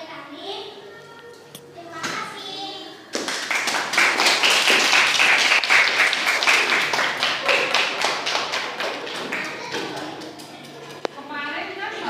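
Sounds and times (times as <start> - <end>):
children applauding: 3.2 - 10.8.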